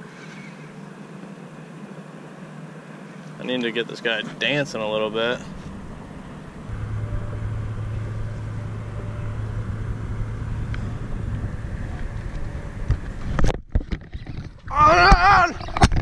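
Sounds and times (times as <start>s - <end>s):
low motor hum: 4.3s - 16.0s
wind noise: 5.5s - 16.0s.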